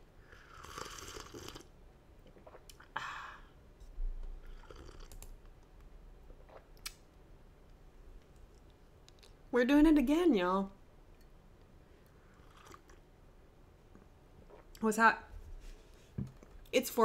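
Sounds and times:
noisy coffee sips: 0:00.3 - 0:02.9, 0:04.4 - 0:05.2, 0:12.2 - 0:13.0.

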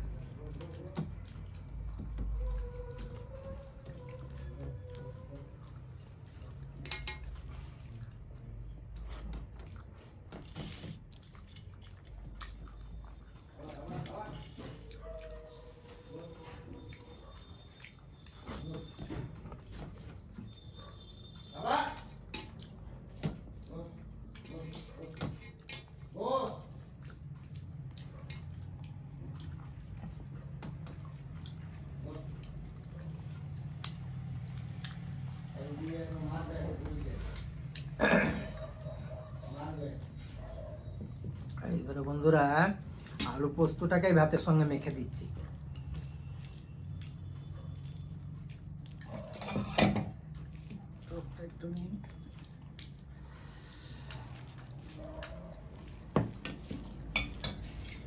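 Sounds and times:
wet chewing sounds: 0:00.0 - 0:58.0
fingers mixing rice: 0:38.8 - 0:49.2, 0:50.3 - 0:57.8.

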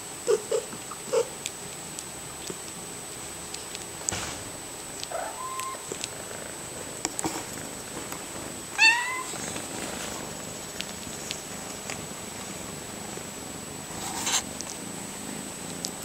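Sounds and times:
cats purring: 0:00.2 - 0:16.0
kitten mewing: 0:05.0 - 0:06.4, 0:08.8 - 0:09.4.

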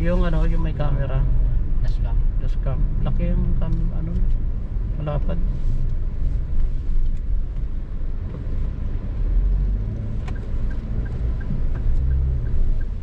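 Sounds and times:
car cabin engine and road drone: 0:00.0 - 0:13.0
turn signal ticking: 0:02.6 - 0:13.0.

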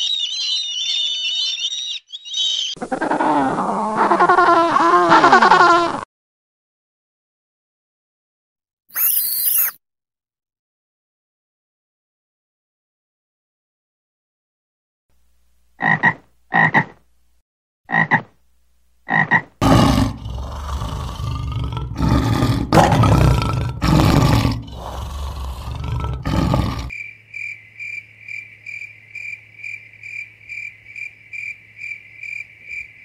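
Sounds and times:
pulsing high-pitched chirping: 0:00.0 - 0:02.8, 0:08.9 - 0:09.8
lion roaring: 0:19.6 - 0:26.9.

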